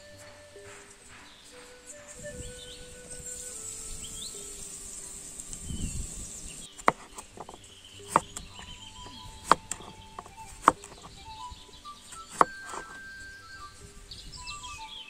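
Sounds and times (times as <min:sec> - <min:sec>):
knife chopping on wooden board: 0:06.8 - 0:11.2, 0:12.1 - 0:13.0
knife slicing cucumber: 0:06.8 - 0:11.2, 0:12.1 - 0:13.0.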